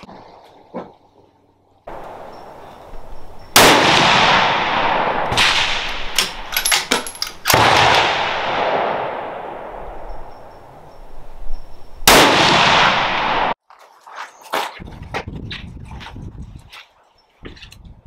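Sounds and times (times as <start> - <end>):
rifle shots echoing: 3.5 - 10.9, 12.0 - 13.6.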